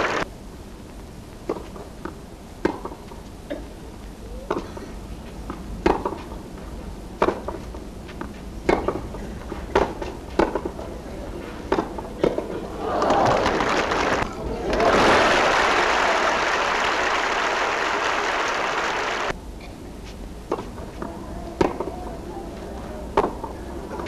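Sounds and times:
tennis ball bouncing: 1.5 - 3.1, 5.4 - 6.3, 7.2 - 10.8, 11.7 - 12.5, 20.5 - 22.0.

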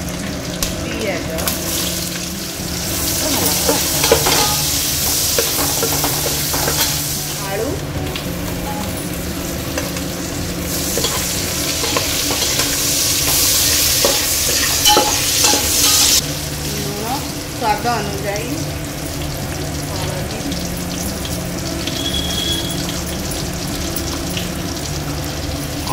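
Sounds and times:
onions sizzling in oil: 0.0 - 25.9
metal spatula scraping a pot: 3.1 - 7.2, 10.7 - 16.2.

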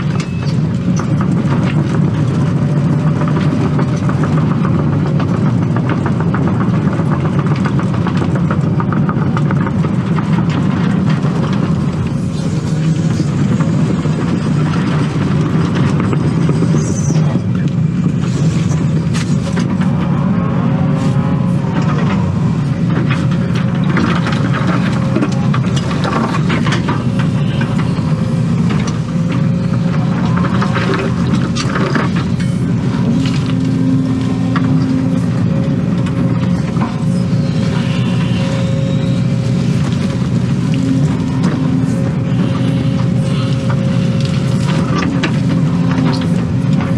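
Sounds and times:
excavator diesel engine running: 0.0 - 46.9
steady whine: 10.4 - 46.9.

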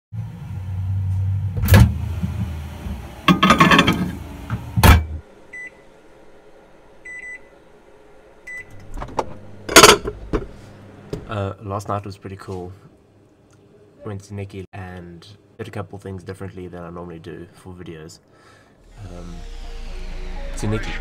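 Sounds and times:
microwave oven humming: 0.1 - 11.7
microwave beeps: 4.9 - 5.9, 7.0 - 7.5, 8.4 - 8.8.

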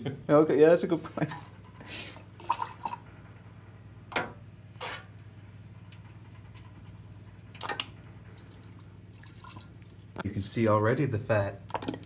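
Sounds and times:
steady low hum: 0.0 - 12.0
drops dripping into liquid: 7.5 - 10.2.

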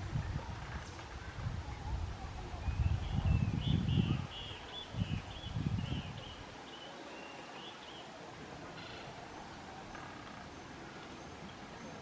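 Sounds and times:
wind buffeting microphone: 0.0 - 6.7.

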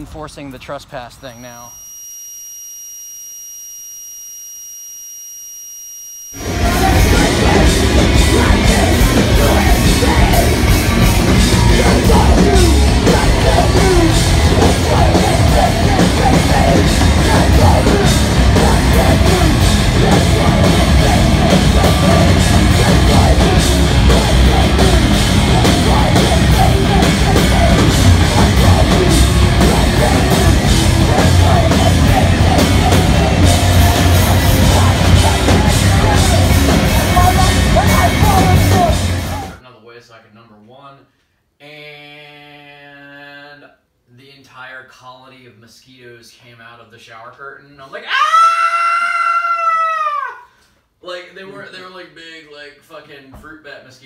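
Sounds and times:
live heavy rock band: 6.4 - 39.6.

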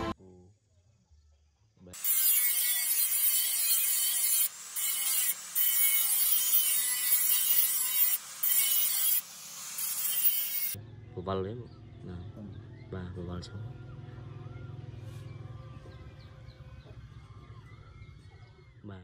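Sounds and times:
angle grinder grinding steel: 2.0 - 10.8.

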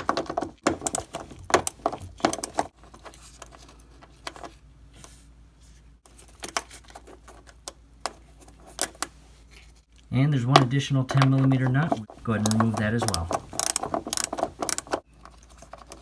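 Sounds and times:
socket wrench ratchet clicking: 12.4 - 15.0.

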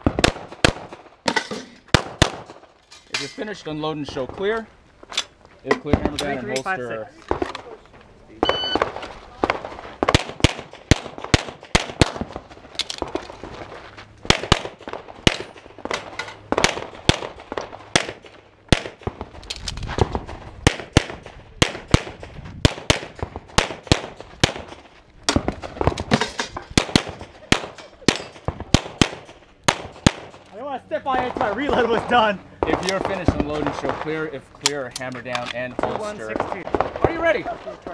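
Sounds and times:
pistol gunfire: 1.9 - 2.6, 8.8 - 12.4, 14.3 - 19.3, 20.6 - 30.4.

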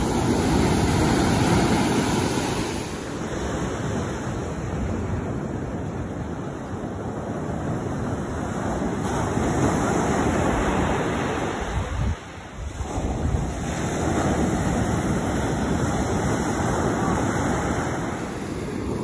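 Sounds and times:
surf breaking on beach: 0.0 - 5.1
wind buffeting microphone: 0.0 - 19.0.

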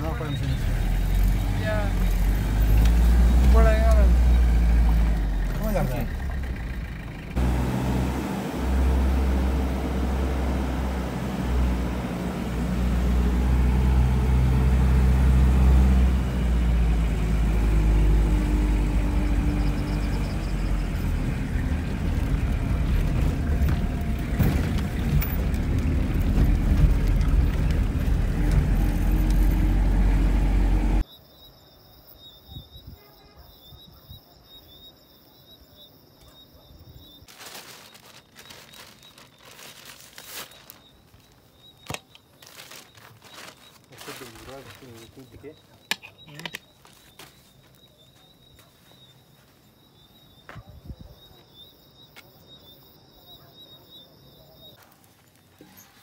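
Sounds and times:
vehicle engine and road rumble: 0.0 - 31.1, 36.3 - 51.3.

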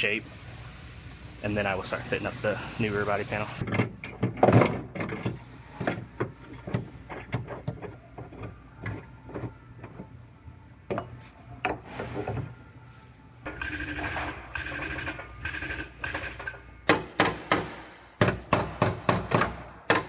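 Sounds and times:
steady mechanical noise: 0.0 - 20.0.

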